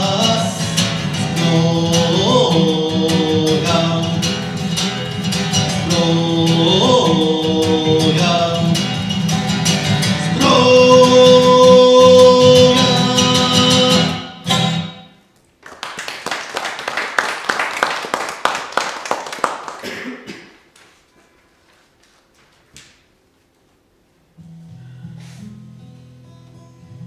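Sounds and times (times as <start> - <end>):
man singing: 0.0 - 14.8
strummed acoustic guitar: 0.0 - 15.2, 24.4 - 27.0
audience applauding: 15.6 - 20.0.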